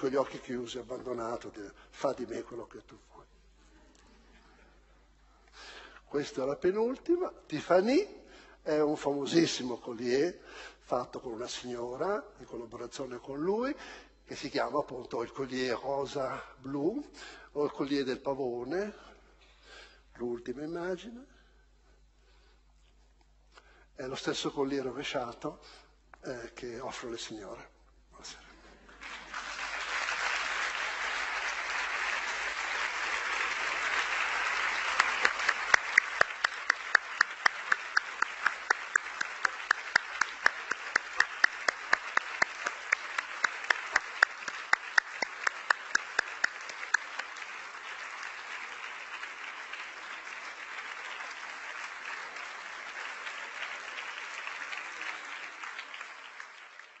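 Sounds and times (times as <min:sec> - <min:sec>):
audience applauding: 0:00.0 - 0:00.2, 0:28.9 - 0:57.0
rhythmic clapping: 0:28.9 - 0:57.0.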